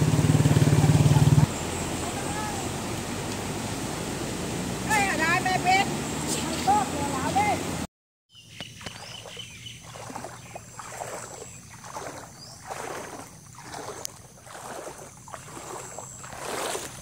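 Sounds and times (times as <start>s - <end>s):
footsteps sloshing through water: 6.2s - 6.9s, 8.4s - 17.0s.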